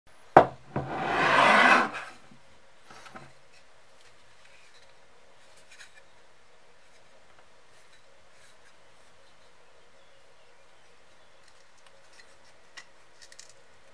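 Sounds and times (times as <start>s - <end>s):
rough rubbing: 0.7s - 2.2s.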